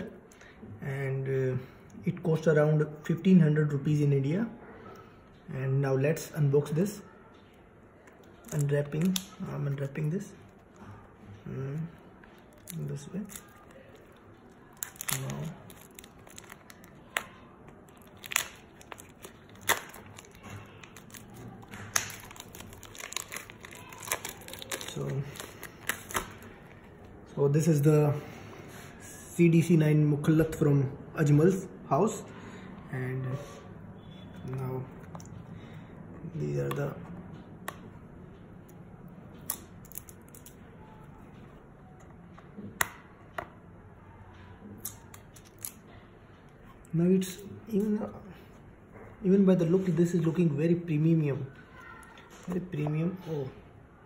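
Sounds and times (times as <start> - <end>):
plastic wrap crinkling and tearing: 8.3 - 11.0, 11.6 - 27.0.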